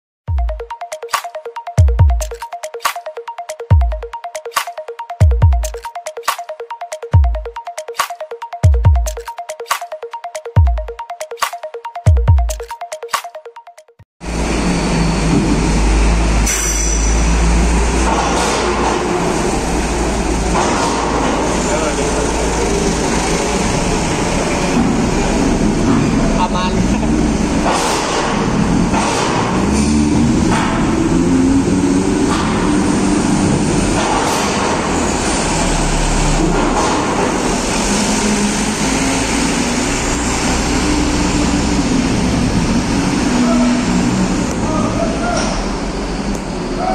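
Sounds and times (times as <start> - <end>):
electronic jingle: 0.3 - 14.0
diesel engine: 14.2 - 46.9
truck driving up ramp: 14.2 - 46.9
vehicle engines running: 14.2 - 46.9.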